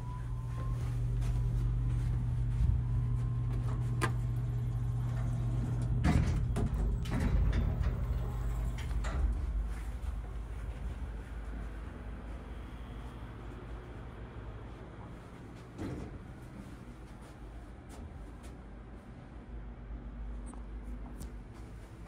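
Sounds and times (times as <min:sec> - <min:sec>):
elevator humming: 0:00.0 - 0:20.3
elevator doors rattling open: 0:03.6 - 0:10.6.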